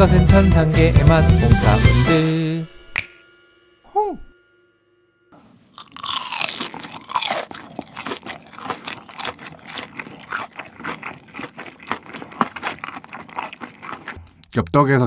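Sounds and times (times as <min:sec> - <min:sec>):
chewing mouth clicks and smacks: 0:05.8 - 0:14.6.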